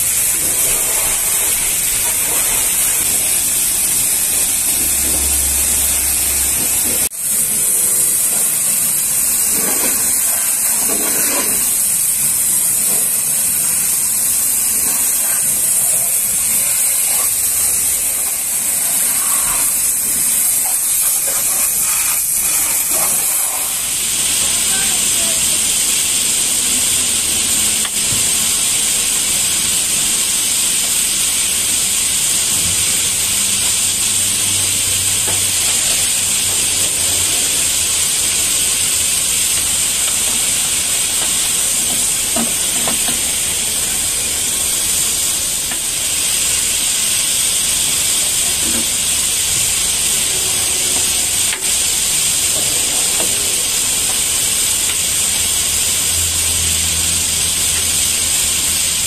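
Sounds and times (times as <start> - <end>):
pressure washer spraying: 0.0 - 59.0.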